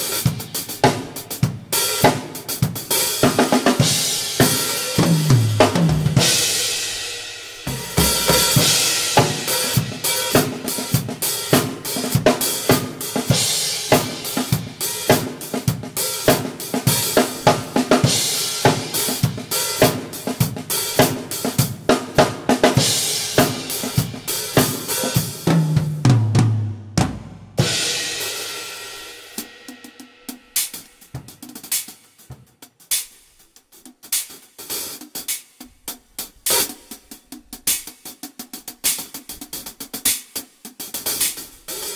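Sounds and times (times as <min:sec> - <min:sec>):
bass drum: 0:00.0 - 0:21.2, 0:21.8 - 0:28.2
hi-hat: 0:00.0 - 0:25.5, 0:27.6 - 0:41.9
snare drum: 0:00.0 - 0:41.9.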